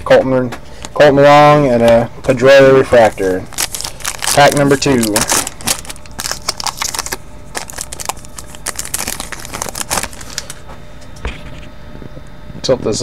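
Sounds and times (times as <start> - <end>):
cards rustling: 2.8 - 10.6
wrapper crinkling: 2.9 - 10.6.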